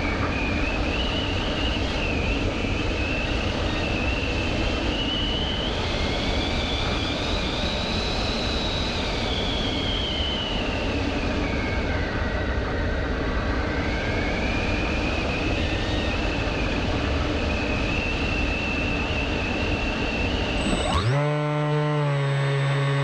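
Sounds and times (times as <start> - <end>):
motor whine: 14.0 - 23.0
drone propeller noise: 20.4 - 23.0.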